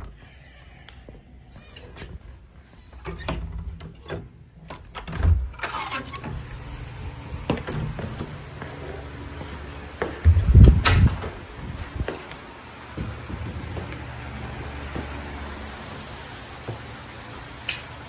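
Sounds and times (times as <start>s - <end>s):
wooden door opening thud: 10.3s - 11.4s.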